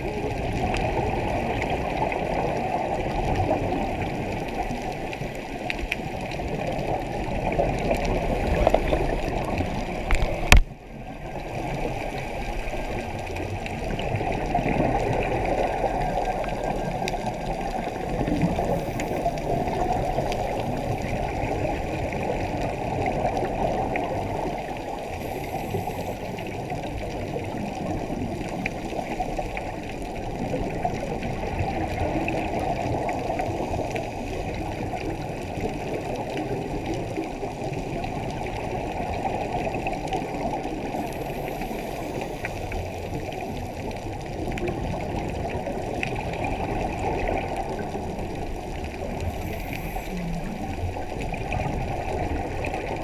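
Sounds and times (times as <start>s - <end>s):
underwater rushing noise: 0.0s - 53.0s
faint clicks: 4.3s - 10.7s.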